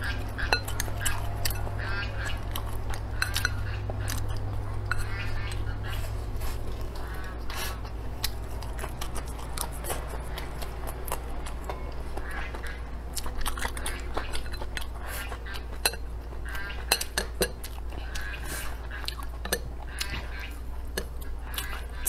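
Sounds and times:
chewing: 0:00.0 - 0:22.0.

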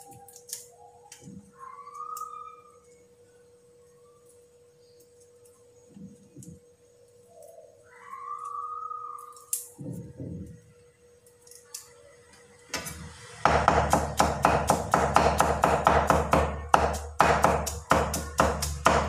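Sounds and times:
cleaver chopping garlic on board: 0:13.5 - 0:19.0.

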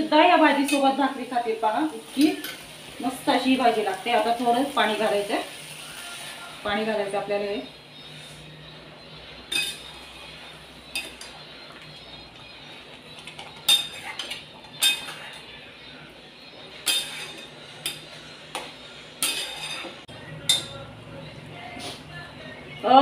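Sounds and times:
utensil clinking against pot: 0:09.5 - 0:09.9, 0:13.2 - 0:15.4, 0:16.8 - 0:20.8.

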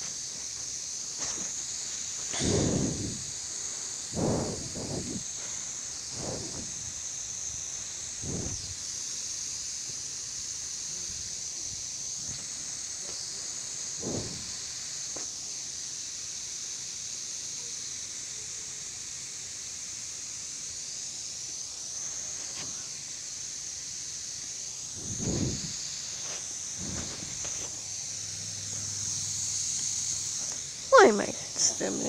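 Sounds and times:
sprinkler heads hissing: 0:00.0 - 0:32.0
dull thumps: 0:14.0 - 0:14.6.

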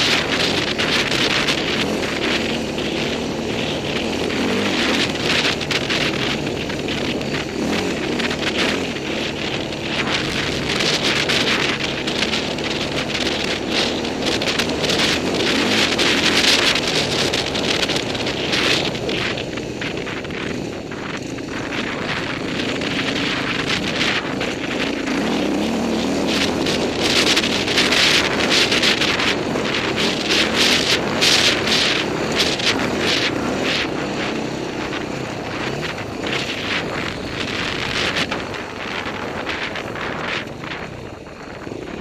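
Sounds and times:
dirt bike engine revving: 0:00.0 - 0:42.0
sharp engine crackles: 0:00.0 - 0:42.0
wind noise on microphone: 0:00.0 - 0:42.0.

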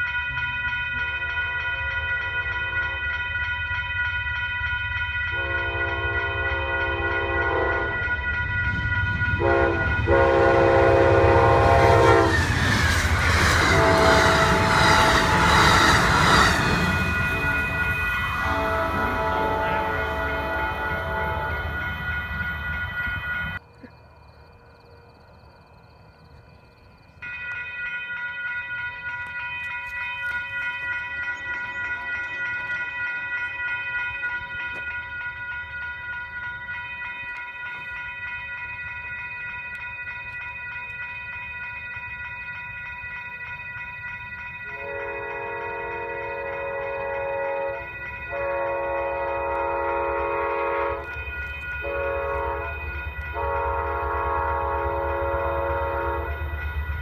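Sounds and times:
passenger train approaching: 0:00.0 - 0:57.0
steady high-pitched ringing: 0:00.0 - 0:57.0
locomotive horn blasts: 0:05.3 - 0:12.8, 0:13.5 - 0:23.6, 0:44.7 - 0:56.6.

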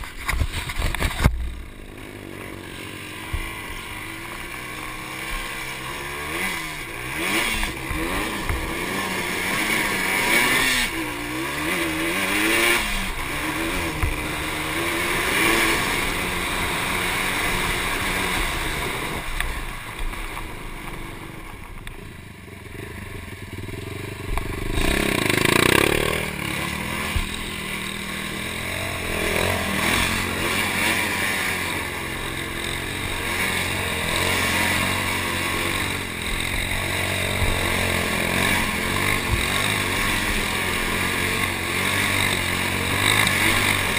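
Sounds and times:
quad engine revving: 0:00.0 - 0:43.9.

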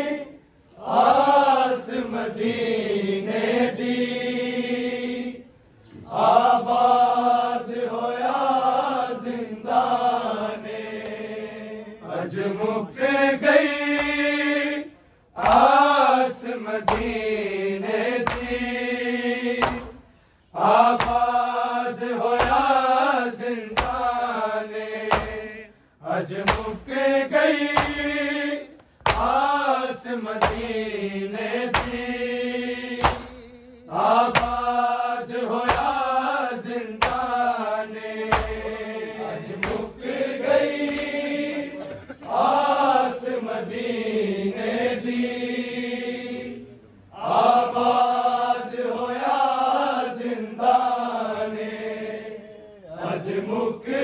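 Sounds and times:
voices chanting a mournful lament: 0:00.0 - 0:54.0
rhythmic chest-beating strikes: 0:16.8 - 0:29.7, 0:30.3 - 0:40.1.

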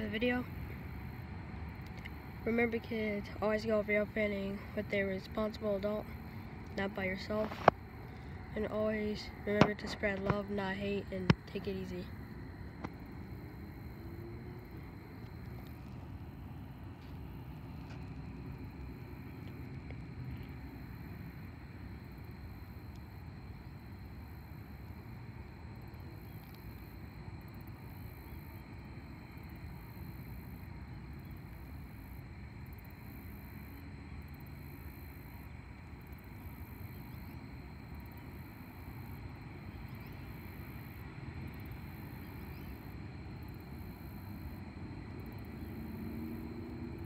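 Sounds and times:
distant freight train rumble: 0:00.0 - 0:26.3.

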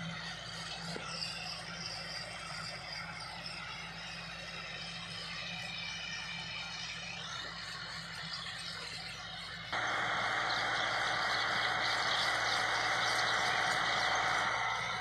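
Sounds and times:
faint high squeaky chirps: 0:00.0 - 0:15.0
tractor diesel engine running: 0:00.0 - 0:15.0
loud even hiss: 0:09.8 - 0:15.0.

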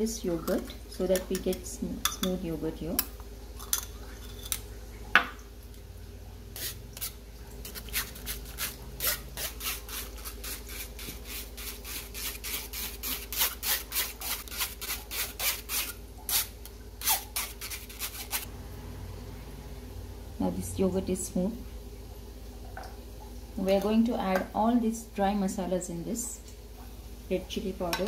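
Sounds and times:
spoon scraping wire mesh: 0:06.6 - 0:18.5.

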